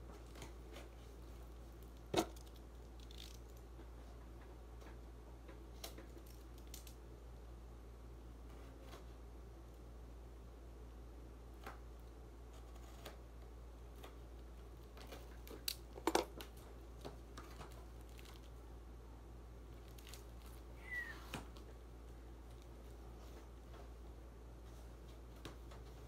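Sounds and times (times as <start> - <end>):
brief squeak: 20.8 - 21.3.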